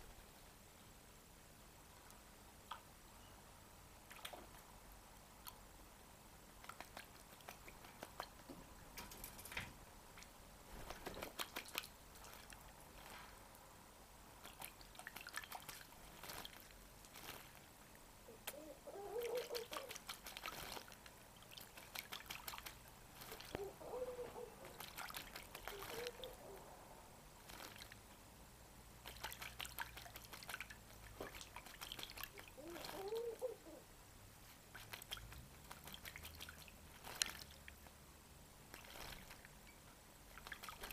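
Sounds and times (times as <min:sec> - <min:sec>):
bird splashing water with wings: 0:04.0 - 0:04.6, 0:06.6 - 0:13.5, 0:14.4 - 0:17.7, 0:19.1 - 0:26.6, 0:27.4 - 0:28.1, 0:29.0 - 0:33.4, 0:34.6 - 0:37.9, 0:38.7 - 0:39.6, 0:40.3 - 0:40.9.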